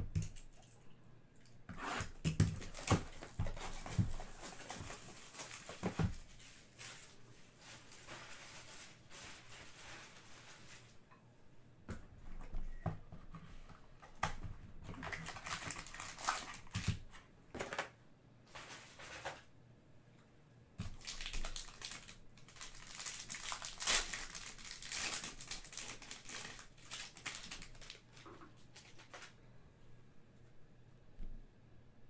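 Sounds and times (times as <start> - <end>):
foil wrapper crinkling: 2.4 - 11.0, 14.9 - 17.1, 20.8 - 29.4.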